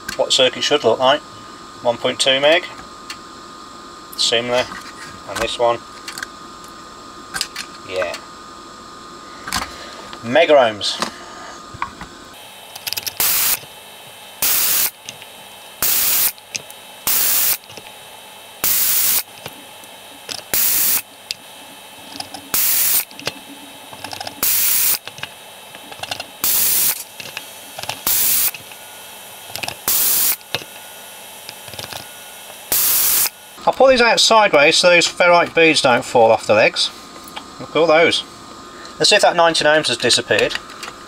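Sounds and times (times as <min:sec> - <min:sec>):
desoldering pump air rushes: 0:12.7 - 0:13.7, 0:14.4 - 0:17.9, 0:18.6 - 0:19.6, 0:20.2 - 0:21.4, 0:22.1 - 0:23.3, 0:23.9 - 0:28.8, 0:29.5 - 0:30.8, 0:31.4 - 0:33.4.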